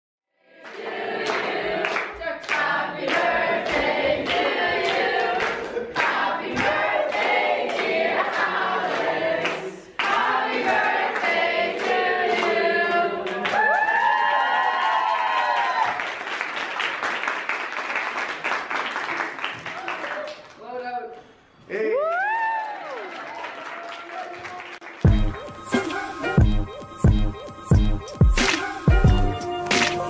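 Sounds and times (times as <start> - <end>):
group singing a birthday song: 0.4 - 13.6
hands clapping on the beat: 0.6 - 13.9, 14.7 - 20.6, 22.1 - 25.9, 28.2 - 30.0.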